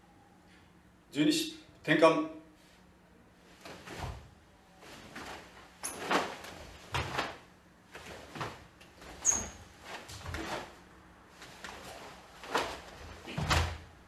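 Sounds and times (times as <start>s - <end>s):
cloth swishing and snapping: 4.8s - 13.9s
bare feet thudding and sliding: 4.9s - 10.8s
high squeaks: 9.2s - 9.7s.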